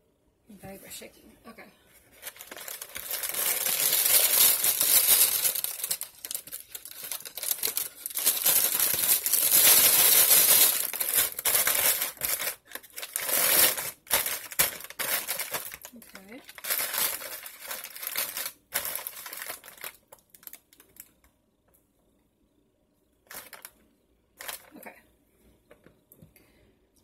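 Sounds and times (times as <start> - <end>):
paper bag crinkling: 2.0 - 21.1, 23.3 - 23.8, 24.4 - 24.8.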